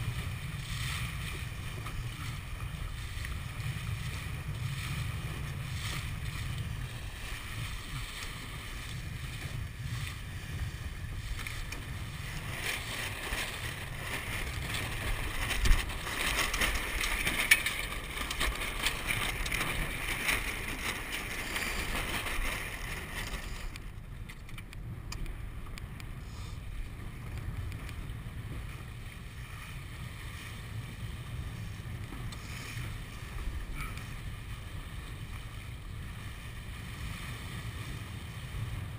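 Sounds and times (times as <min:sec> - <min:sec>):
water rushing along boat hull: 0:00.0 - 0:38.9
wind buffeting microphone: 0:00.0 - 0:38.9.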